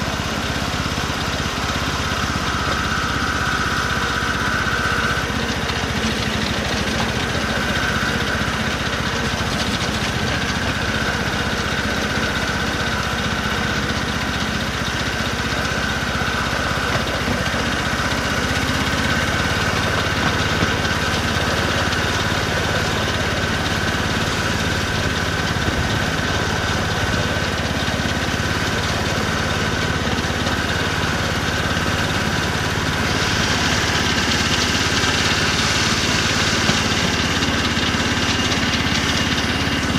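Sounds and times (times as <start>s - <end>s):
miniature locomotive engine running: 0.0s - 39.9s.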